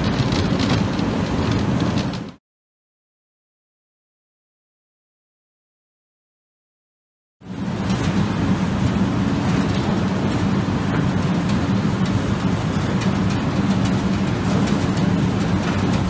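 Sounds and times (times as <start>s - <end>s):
machine rumbling and humming: 0.0s - 2.4s, 7.4s - 16.0s.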